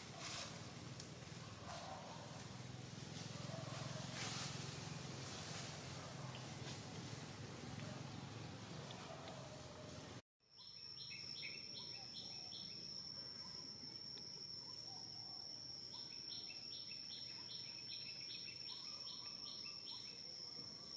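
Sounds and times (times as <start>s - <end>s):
insect chirps: 10.4s - 20.9s.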